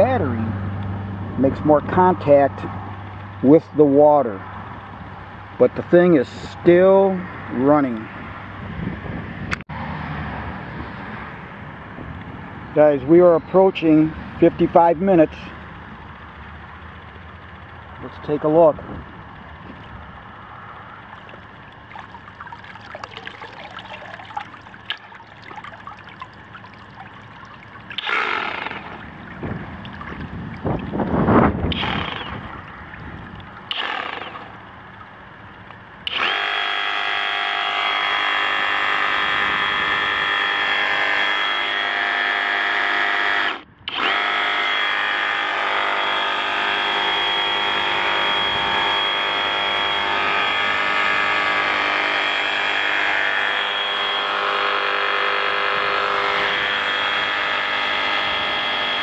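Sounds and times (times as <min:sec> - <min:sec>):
water sloshing and pouring: 0:20.8 - 0:35.9
reciprocating saw whining: 0:28.0 - 0:29.1, 0:33.7 - 0:34.6, 0:36.0 - 0:59.0.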